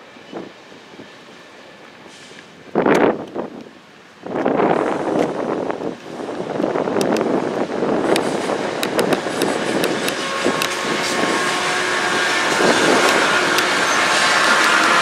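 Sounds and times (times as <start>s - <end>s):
diesel locomotive rumble: 0.0s - 15.0s
wheels clicking over rail joints: 1.4s - 15.0s.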